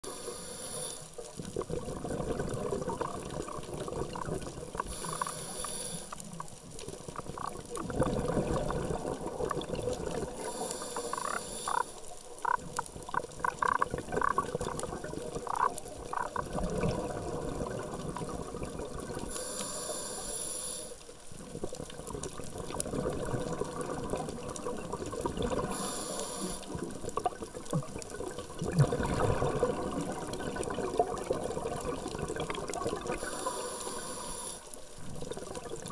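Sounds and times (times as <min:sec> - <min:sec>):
regulator inhalation hiss: 0:00.0 - 0:01.2, 0:04.8 - 0:06.4, 0:10.4 - 0:12.0, 0:19.3 - 0:21.1, 0:25.7 - 0:26.8, 0:33.2 - 0:34.8
exhaled bubbles gurgling: 0:00.1 - 0:20.3, 0:21.2 - 0:35.9.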